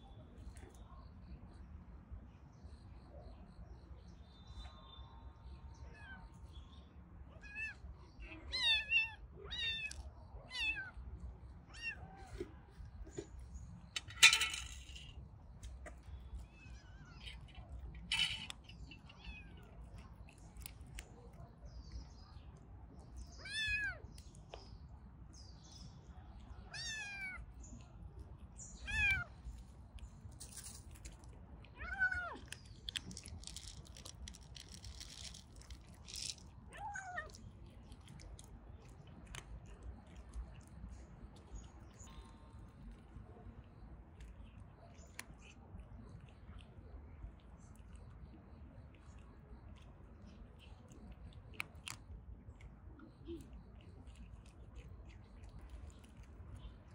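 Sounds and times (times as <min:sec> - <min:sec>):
cat meowing: 0:07.4 - 0:11.0, 0:23.4 - 0:24.0, 0:26.7 - 0:27.4, 0:28.8 - 0:29.3, 0:31.8 - 0:32.5, 0:36.7 - 0:37.4.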